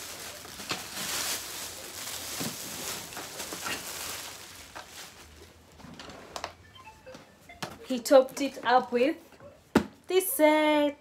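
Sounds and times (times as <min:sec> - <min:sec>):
plastic bag crinkling: 0:00.0 - 0:06.2.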